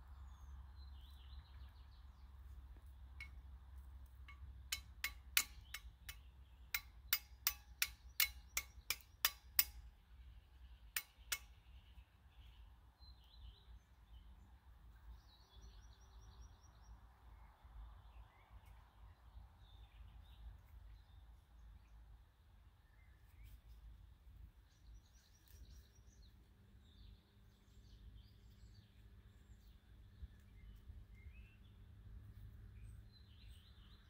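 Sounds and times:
faint birds chirping: 0.0s - 34.0s
flint striking steel: 4.2s - 9.9s, 11.0s - 11.6s.

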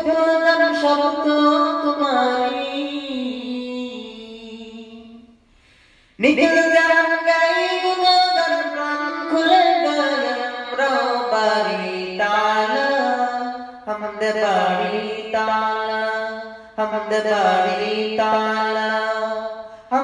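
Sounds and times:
person singing: 6.2s - 20.0s.

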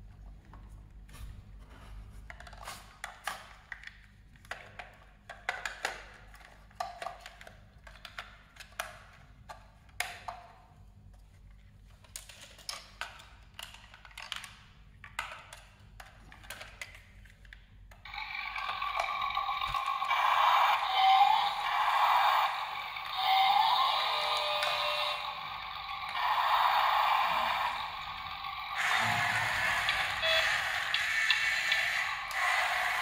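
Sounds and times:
plastic toy clicks and knocks: 2.3s - 10.6s, 12.0s - 21.8s
toy electronic sound effect: 18.1s - 33.0s.

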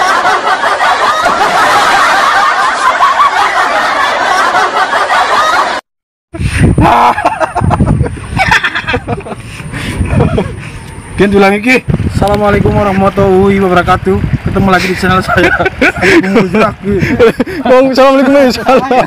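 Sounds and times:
many people laughing: 0.0s - 5.8s, 6.8s - 10.7s, 14.8s - 19.0s
low rumble: 7.4s - 17.0s.

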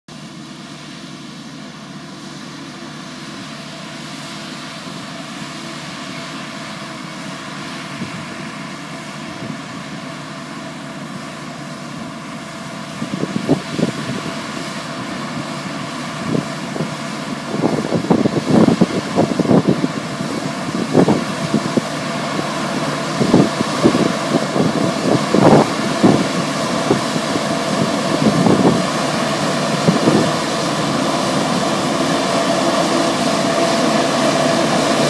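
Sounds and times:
tractor engine drone: 0.1s - 35.0s
vacuum fan running: 0.1s - 35.0s
wind buffeting microphone: 12.9s - 15.5s, 16.2s - 35.0s.

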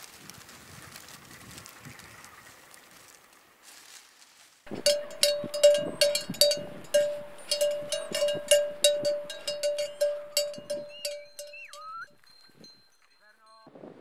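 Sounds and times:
livestock bell clanking: 4.7s - 13.6s.

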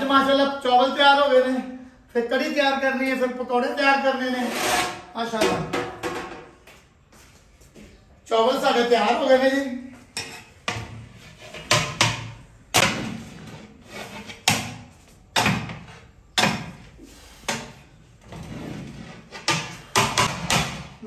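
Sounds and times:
pots and utensils clanking: 10.1s - 14.7s.

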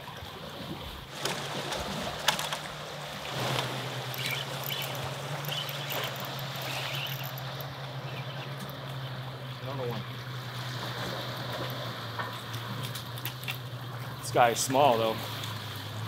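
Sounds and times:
sea water washing against rocks: 0.0s - 9.1s
motorboat humming: 0.0s - 16.0s.

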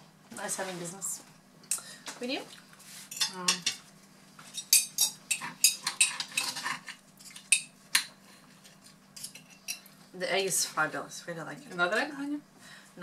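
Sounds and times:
cutlery scraping glass plate: 4.5s - 7.6s.

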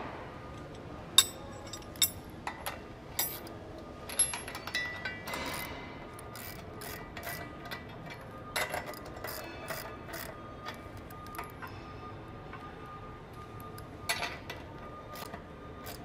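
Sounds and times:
metal tools clinking on steel bracket: 0.6s - 5.7s.

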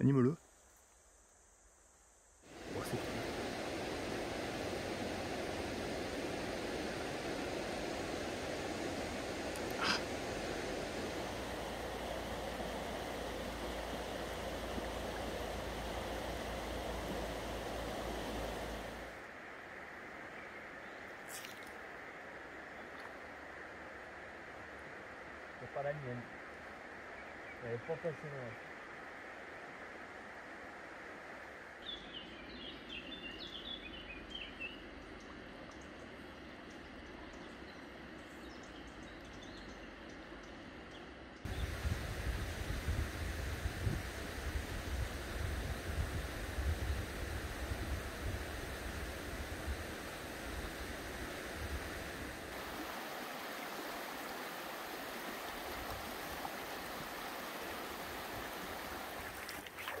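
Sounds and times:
flowing river water: 2.4s - 32.4s, 41.4s - 60.0s
songbird chirping: 31.8s - 42.0s.

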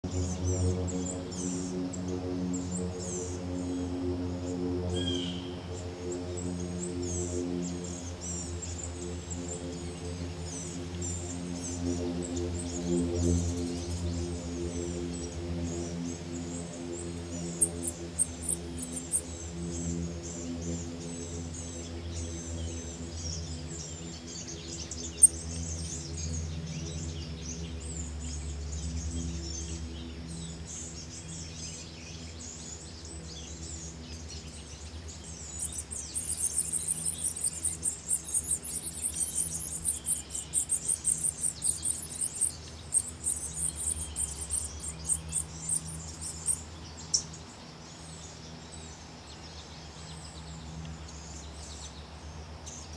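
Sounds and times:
steady low hum: 0.0s - 52.9s
birds chirping and calling: 4.9s - 5.9s, 7.0s - 29.9s, 30.5s - 48.5s.

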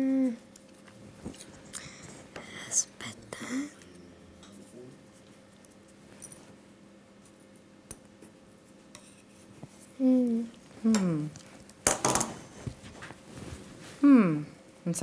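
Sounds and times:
person humming: 0.0s - 0.4s, 10.0s - 11.4s, 14.0s - 14.6s.

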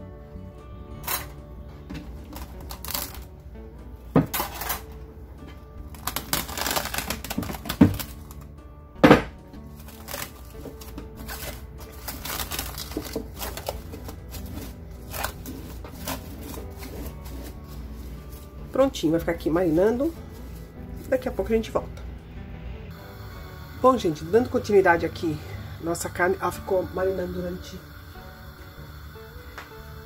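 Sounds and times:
background music: 0.0s - 30.0s
cling film crinkling: 2.3s - 3.3s, 5.9s - 8.5s, 9.7s - 18.8s.

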